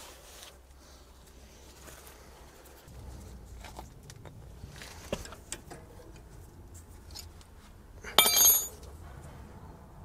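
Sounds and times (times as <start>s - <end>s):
ringing metallic clink: 8.2s - 8.8s.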